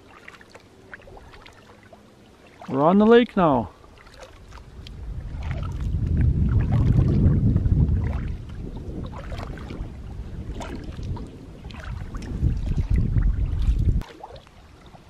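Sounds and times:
kayak paddle splashing water: 0.0s - 15.0s
low rumble: 4.6s - 14.0s.

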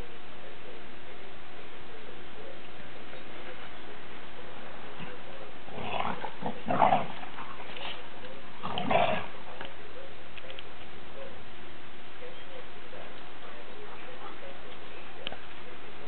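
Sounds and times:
dog growling: 5.0s - 8.0s, 8.6s - 9.6s.

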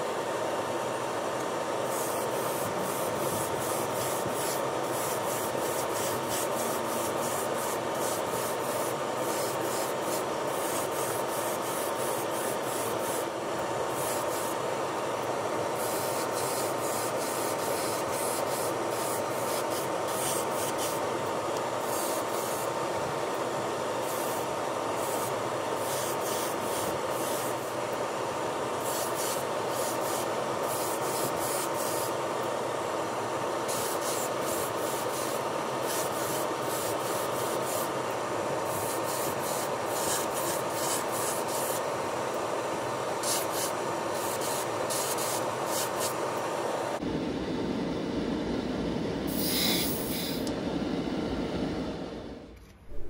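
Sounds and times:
extraction fan whirring: 0.0s - 53.0s
airbrush hissing bursts: 1.8s - 14.7s, 15.7s - 21.1s, 21.7s - 22.8s, 24.0s - 27.8s, 28.8s - 32.2s, 33.7s - 38.0s, 38.6s - 41.9s, 43.2s - 46.2s, 47.6s - 53.0s
faint hum: 41.5s - 53.0s.

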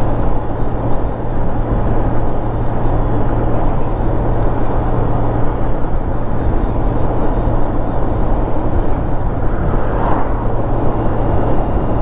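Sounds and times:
low motorcycle engine drone: 0.0s - 12.0s
wind rush over microphone: 0.0s - 12.0s
passing car whoosh: 8.7s - 11.8s.

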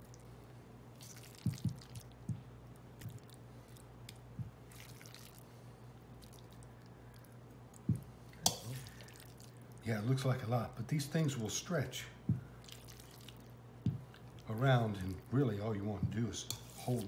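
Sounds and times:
low steady hum: 0.0s - 17.0s
soft wet plops of filling: 1.0s - 2.4s, 4.1s - 5.6s, 6.2s - 9.8s, 12.3s - 14.6s
spoon scraping bowl: 16.4s - 17.0s.

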